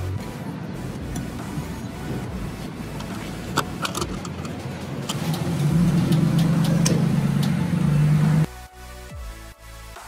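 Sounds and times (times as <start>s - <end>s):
fuel pump humming: 0.0s - 8.5s
fuel cap clicking: 3.0s - 7.6s.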